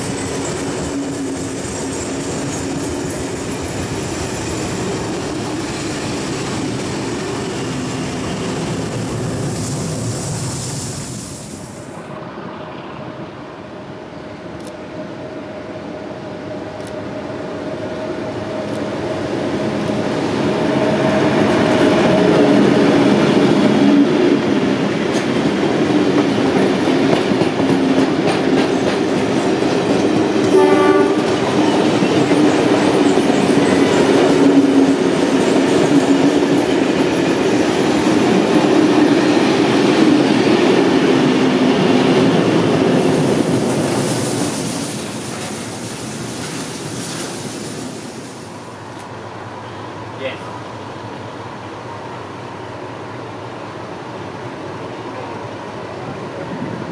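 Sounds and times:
train wheels clattering on rails: 0:00.0 - 0:10.8, 0:19.7 - 0:49.1.

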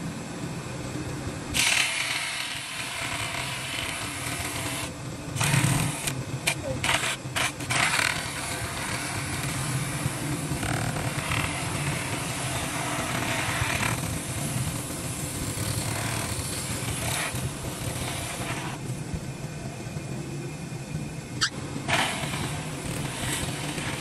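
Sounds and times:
hissing scraping bursts: 0:21.4 - 0:24.0.

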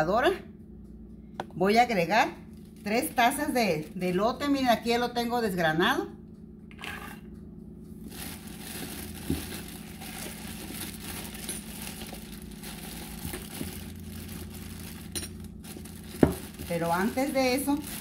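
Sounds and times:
steady low hum: 0:00.0 - 0:18.0
plastic bag crinkling: 0:08.0 - 0:18.0.

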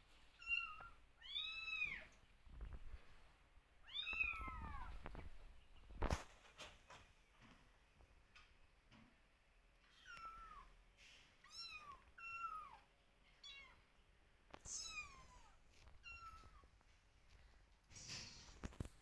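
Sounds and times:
kittens meowing: 0:03.9 - 0:05.0, 0:14.6 - 0:16.6.

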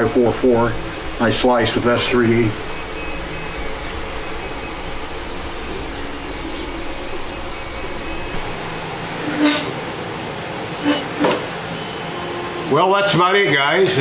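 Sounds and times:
low rumble: 0:00.0 - 0:09.3
steady background hum: 0:00.0 - 0:14.0.

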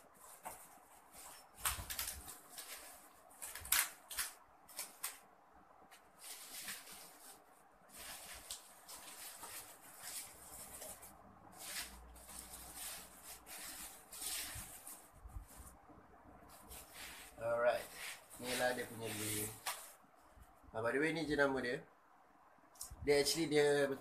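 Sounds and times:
bubble wrap crinkling: 0:00.0 - 0:05.2, 0:05.9 - 0:15.8, 0:16.5 - 0:20.0.

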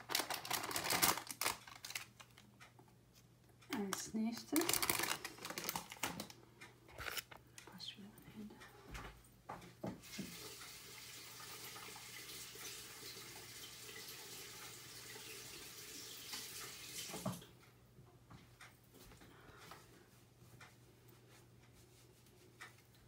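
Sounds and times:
water running from tap: 0:10.0 - 0:17.4.

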